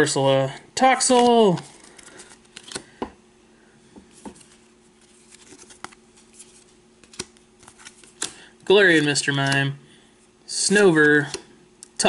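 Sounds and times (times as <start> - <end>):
faint steady hum: 0.0 - 12.0
cards sliding and tapping: 1.1 - 3.2, 4.0 - 9.6.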